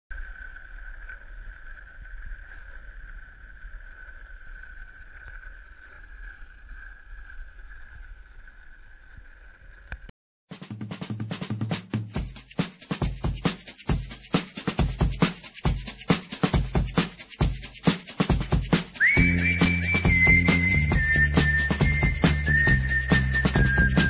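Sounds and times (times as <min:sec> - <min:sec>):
music with a beat: 0:10.5 - 0:24.0.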